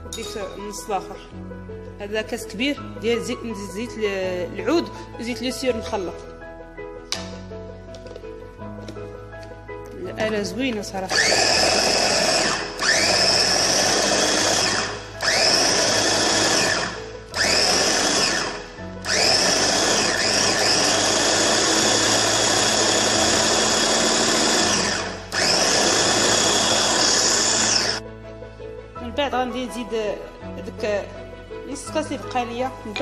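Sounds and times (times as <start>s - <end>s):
food chopper motor whining: 11.1s - 28.0s.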